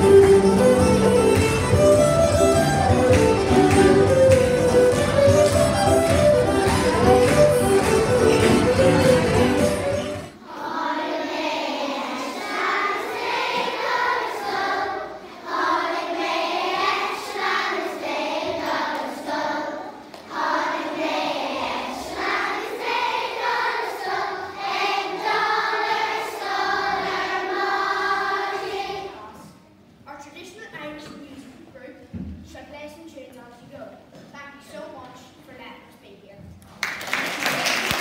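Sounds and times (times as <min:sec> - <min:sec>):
fiddle music: 0:00.0 - 0:10.4
children singing together: 0:06.1 - 0:29.5.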